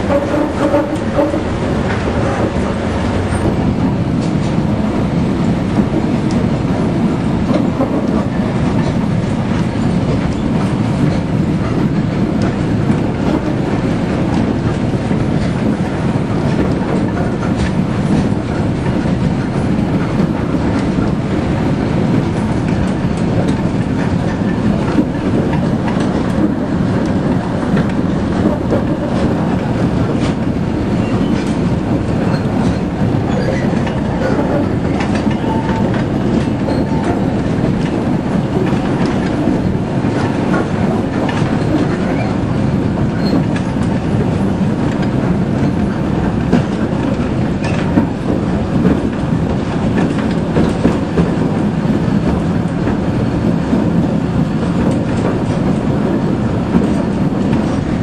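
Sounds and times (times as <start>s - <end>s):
diesel locomotive engine running: 0.0s - 58.0s
wheels clicking over rails: 0.0s - 58.0s.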